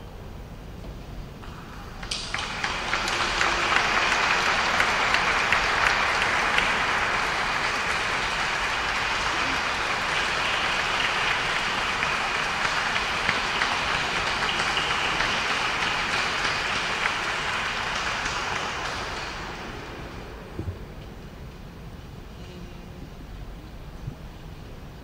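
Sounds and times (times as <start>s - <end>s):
audience applauding: 1.4s - 21.2s.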